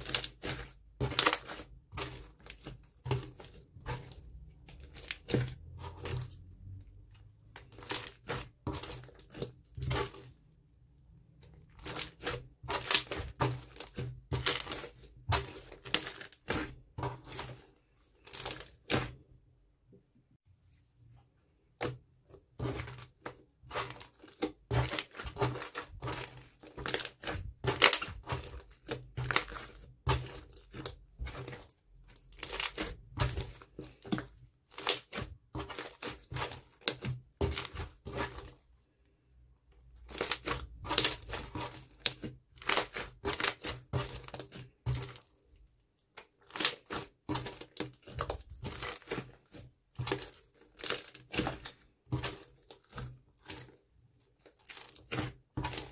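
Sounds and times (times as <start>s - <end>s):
slime squishing with wet pops: 21.7s - 38.5s, 39.8s - 55.9s.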